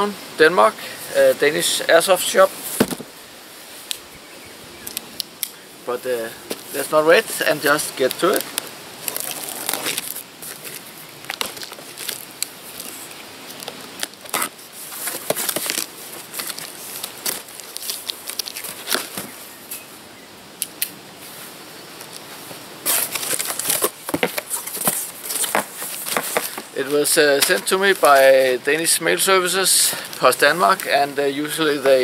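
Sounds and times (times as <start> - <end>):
cardboard flaps rustling: 2.6 - 3.2, 6.4 - 19.5, 22.1 - 29.1
knife slitting packing tape: 9.0 - 10.7, 13.6 - 19.2, 22.8 - 26.6.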